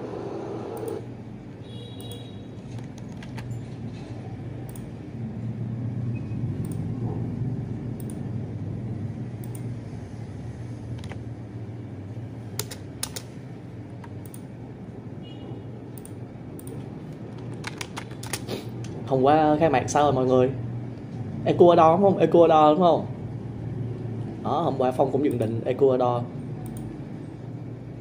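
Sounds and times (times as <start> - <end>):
ceiling fan hum: 0.0 - 28.0
typing on keys: 12.6 - 13.3, 16.0 - 18.5.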